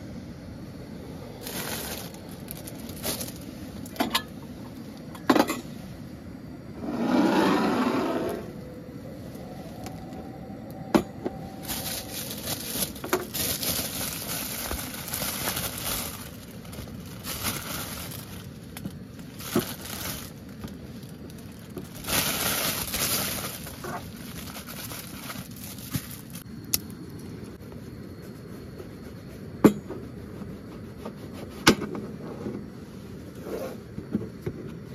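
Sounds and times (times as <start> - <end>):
plastic bag crinkling: 1.4 - 4.0, 11.5 - 26.5.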